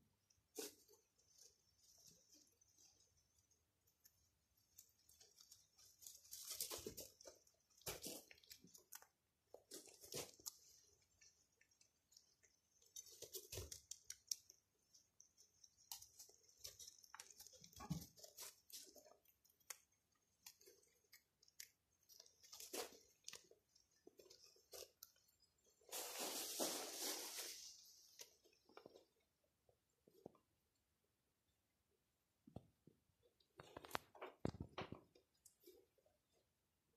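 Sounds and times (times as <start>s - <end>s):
rabbits chewing: 0.0s - 36.9s
rustling in bedding: 25.8s - 28.3s.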